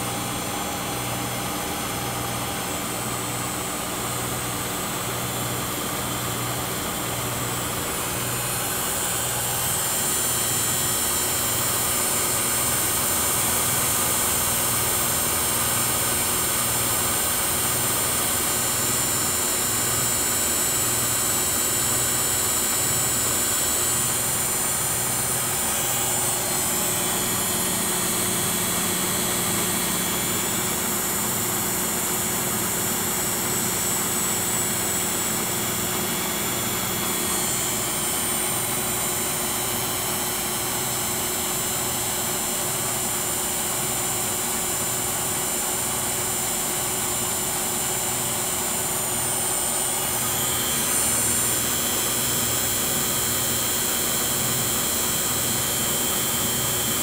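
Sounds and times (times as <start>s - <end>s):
washing machine motor whining: 0.0s - 57.0s.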